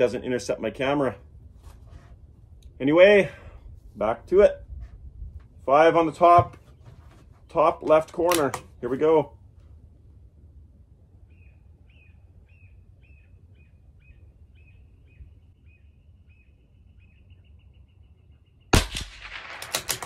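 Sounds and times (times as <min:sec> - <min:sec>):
rifle shot crack: 0:18.7 - 0:20.0
quick clicks: 0:19.2 - 0:20.0.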